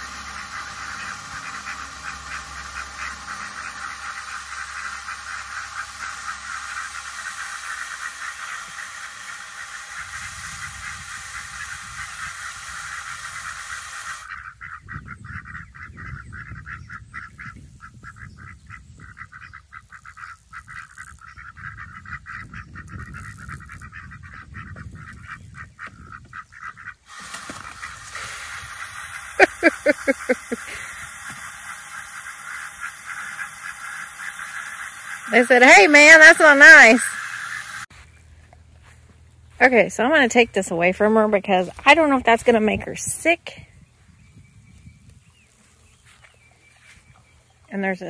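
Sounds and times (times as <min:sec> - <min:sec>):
water running into a trough: 0:00.0 - 0:14.4, 0:27.1 - 0:37.9
ducks quacking: 0:00.0 - 0:38.1.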